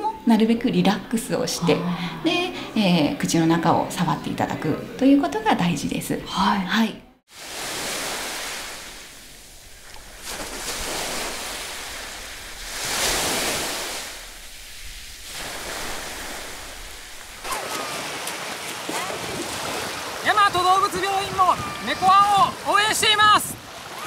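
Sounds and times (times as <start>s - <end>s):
sea waves washing on beach: 7.3s - 24.0s
feet splashing in shallow water: 7.6s - 24.0s.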